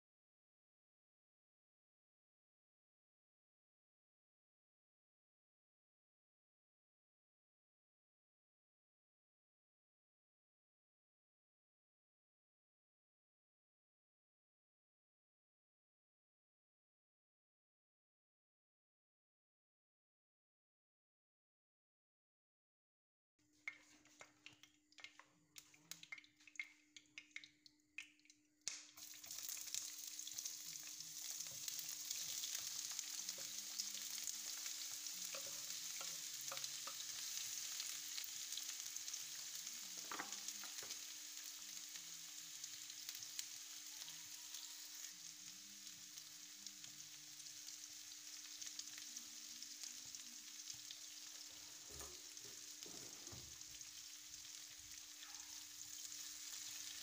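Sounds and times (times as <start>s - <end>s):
onions sizzling in oil: 28.7s - 57.0s.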